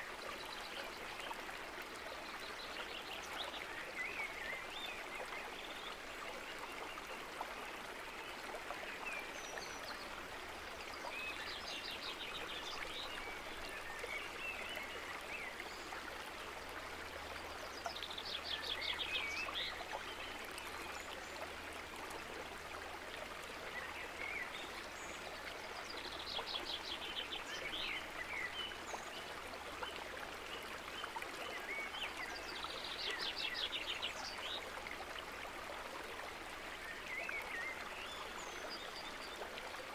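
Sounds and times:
rushing water: 0.0s - 39.9s
songbird singing and chirping: 17.3s - 21.5s, 23.6s - 34.7s.

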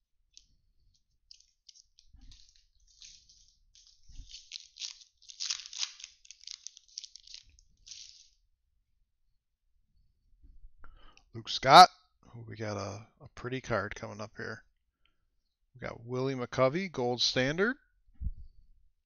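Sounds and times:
plastic wrapper crinkling and tearing: 0.3s - 8.4s.

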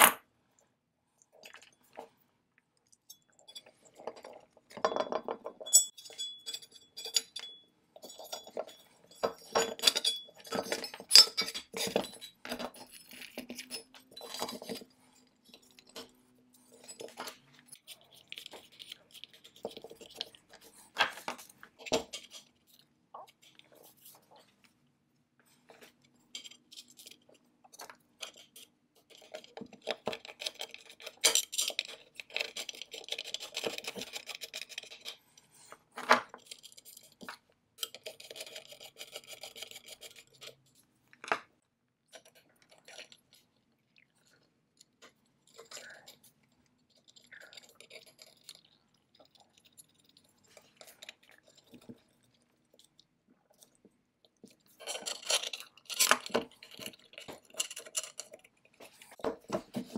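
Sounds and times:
small metal parts clicking: 54.8s - 58.4s.

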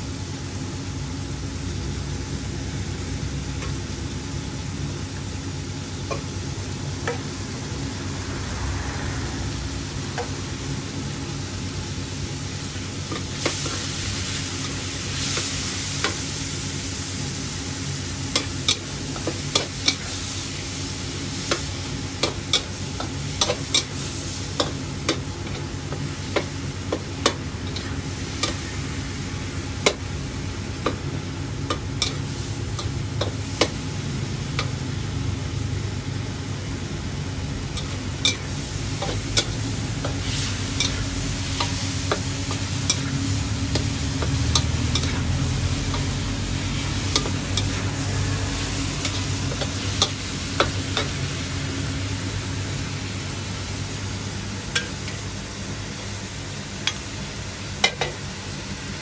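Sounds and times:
food sizzling in a wok: 0.0s - 59.0s
low rumble: 7.5s - 10.7s
spatula clanking on wok: 41.6s - 46.2s.

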